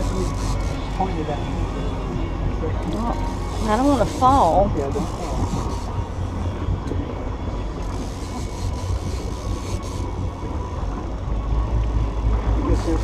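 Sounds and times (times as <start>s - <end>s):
boat engine low rumble: 0.0s - 13.0s.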